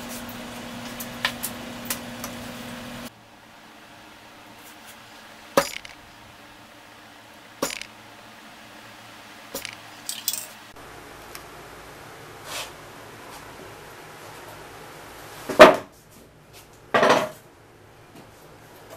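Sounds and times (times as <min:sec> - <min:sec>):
metal spray cans clinking: 0:09.6 - 0:10.6.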